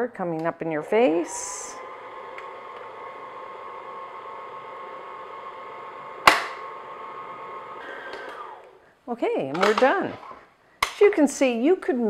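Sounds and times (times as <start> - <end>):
stand mixer motor whine: 0.9 - 8.8.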